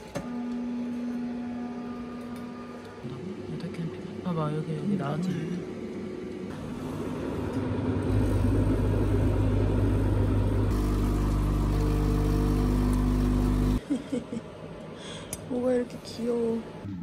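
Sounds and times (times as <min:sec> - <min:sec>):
coffee machine pump hum: 0:06.3 - 0:13.8.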